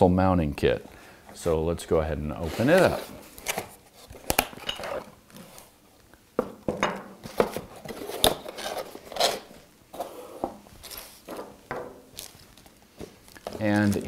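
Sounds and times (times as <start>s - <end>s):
scraping and rustling: 7.2s - 14.0s.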